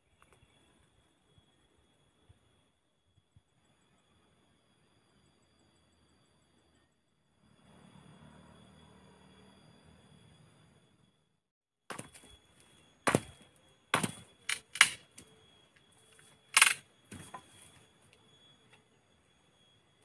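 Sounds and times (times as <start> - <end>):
machete chopping wood: 11.9 - 12.2, 13.1 - 13.4, 14.0 - 15.0.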